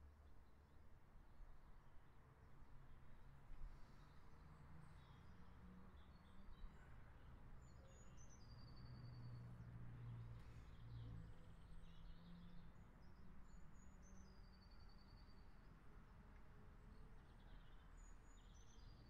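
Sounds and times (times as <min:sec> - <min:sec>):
songbird singing a trill: 0:17.3 - 0:19.0.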